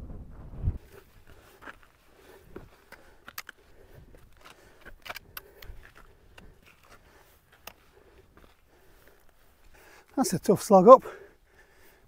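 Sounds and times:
footsteps scuffing on rocky path: 0.8 - 9.8
trekking pole clicking on rock: 1.3 - 8.6.

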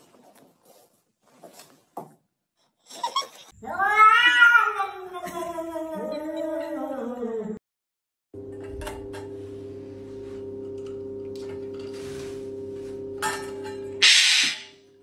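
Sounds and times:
parrot squawking: 14.0 - 14.7.

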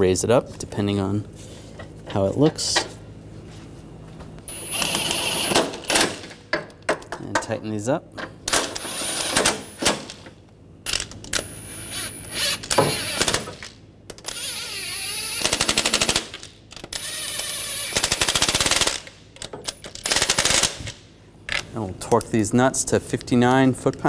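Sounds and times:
impact wrench whining: 4.5 - 6.4, 8.5 - 21.0.

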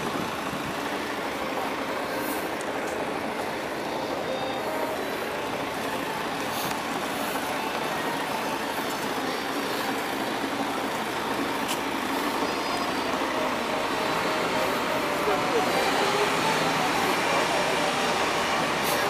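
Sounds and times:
buses and cars passing: 0.0 - 19.0.

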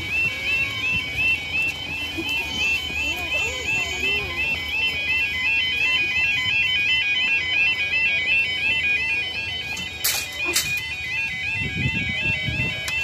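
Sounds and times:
level crossing alarm warbling: 0.0 - 13.0.

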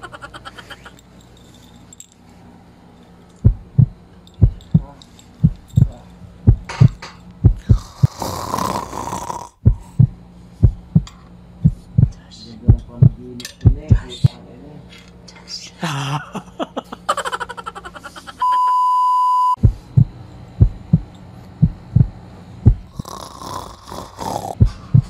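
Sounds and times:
heartbeat double thump: 3.4 - 4.8, 5.4 - 8.2, 9.6 - 14.0, 19.6 - 22.9
breathy hiss: 7.6 - 9.9, 22.9 - 24.6.

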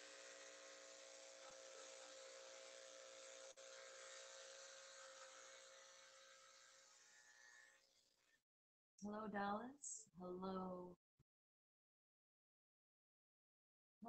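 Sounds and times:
electric clippers buzzing: 0.0 - 8.3.

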